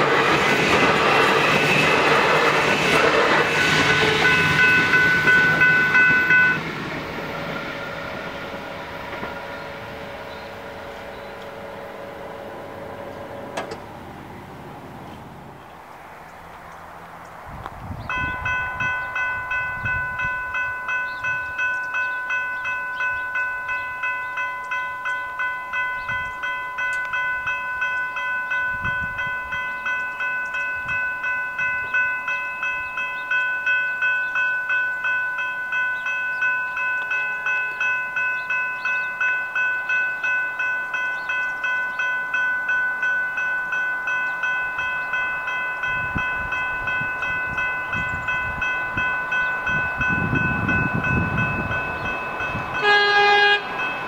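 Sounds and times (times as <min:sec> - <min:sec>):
level crossing bells clanging: 0:03.6 - 0:06.8, 0:18.1 - 0:54.0.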